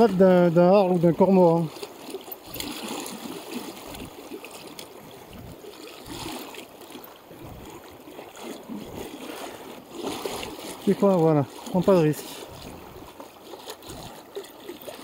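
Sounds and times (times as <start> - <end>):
flowing river water: 0.0 - 15.0.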